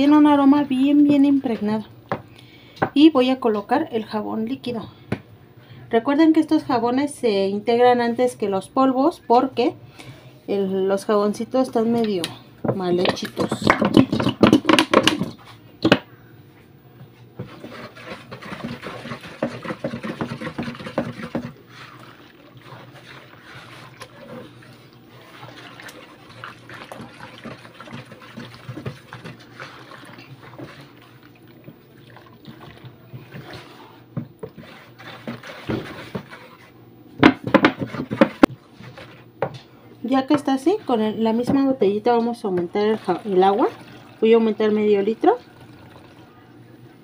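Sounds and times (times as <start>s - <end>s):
wooden spoon stirring water: 11.7s - 15.6s, 17.0s - 46.6s
liquid soap pouring and splashing: 17.4s - 36.7s, 42.7s - 46.3s.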